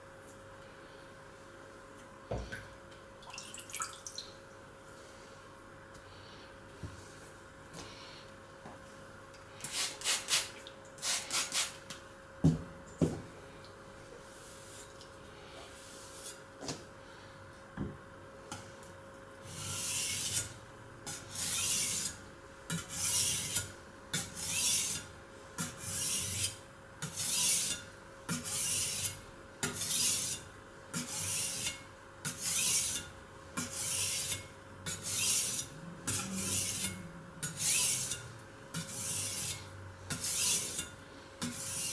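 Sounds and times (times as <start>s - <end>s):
blade scraping on sharpening stone: 19.6s - 20.5s, 21.1s - 25.0s, 25.6s - 41.9s.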